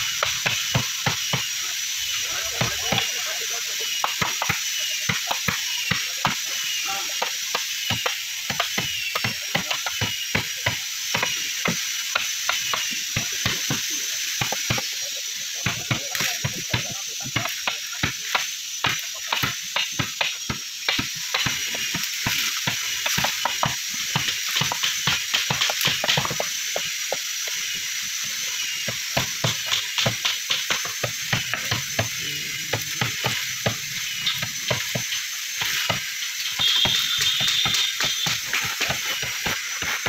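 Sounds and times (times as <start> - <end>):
steady high hiss: 0.0 - 40.0
hammers knocking on chisels: 3.9 - 6.5, 7.2 - 15.0, 15.6 - 27.3, 28.9 - 40.0.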